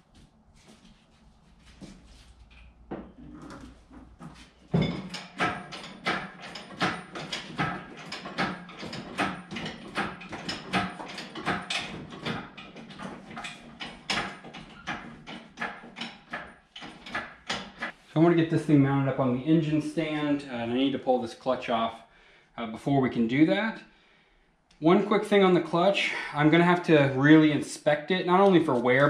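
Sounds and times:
metal clanks and knocks: 2.4s - 18.0s
engine hoist chain clicks: 5.1s - 17.9s.

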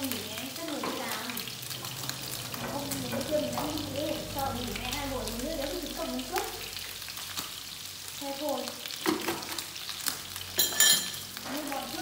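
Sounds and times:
meat sizzling in a pan: 0.0s - 12.0s
bright ringing clink: 10.6s - 11.2s.

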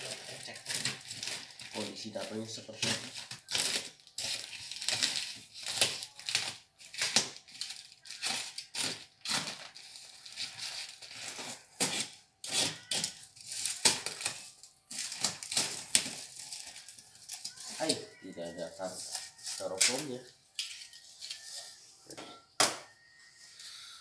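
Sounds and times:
cardboard scraping and tearing: 0.0s - 16.9s
packing tape ripping: 0.0s - 17.9s.

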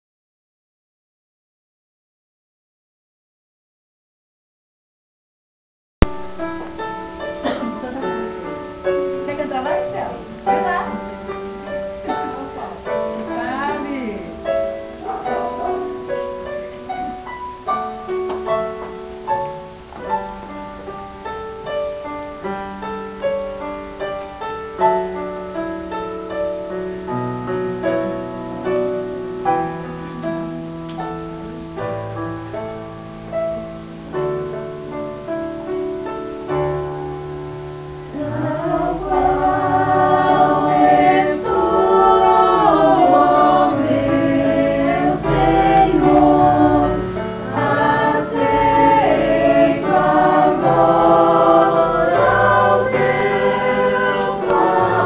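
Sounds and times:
solo piano: 6.0s - 55.0s
mixed choir singing: 38.1s - 55.0s.

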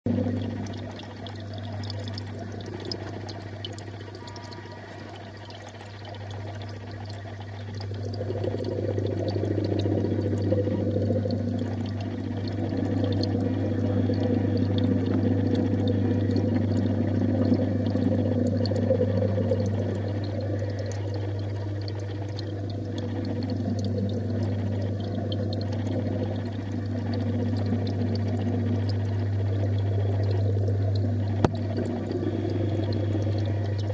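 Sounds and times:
pump humming: 0.1s - 33.9s
water pouring and churning: 0.1s - 33.9s.

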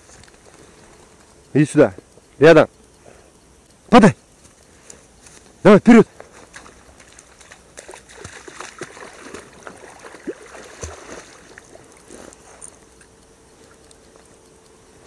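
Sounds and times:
dry reeds rustling: 0.0s - 15.0s
splashing through shallow water: 6.3s - 12.4s.

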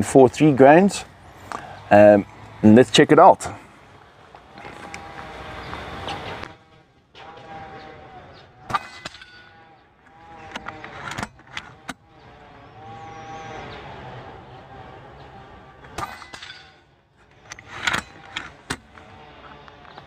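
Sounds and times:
background hum: 0.0s - 20.0s.

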